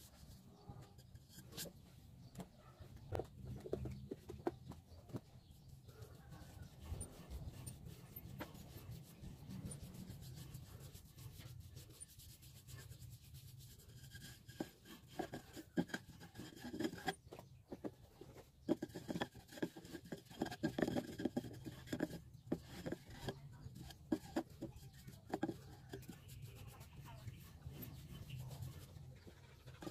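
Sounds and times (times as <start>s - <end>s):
paintbrush brushing on wood: 5.4s - 17.1s, 18.6s - 29.9s.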